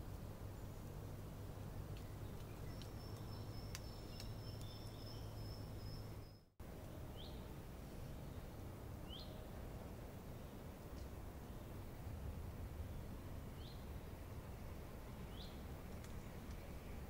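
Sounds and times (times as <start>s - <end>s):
low steady hum: 0.0s - 17.0s
small bird chirps: 1.9s - 6.5s.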